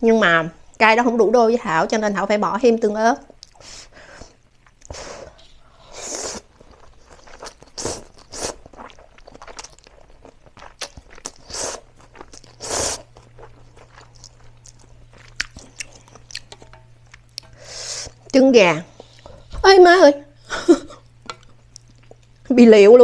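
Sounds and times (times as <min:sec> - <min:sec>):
chewing with wet mouth clicks: 0:03.3 - 0:03.6, 0:06.6 - 0:18.4, 0:21.1 - 0:22.4
noodles slurped: 0:04.8 - 0:16.6.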